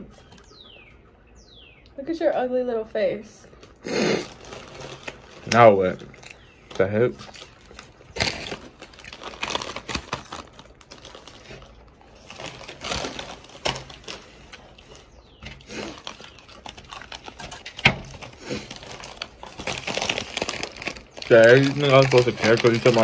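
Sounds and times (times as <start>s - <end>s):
crinkling and rustling: 3.6s - 23.0s.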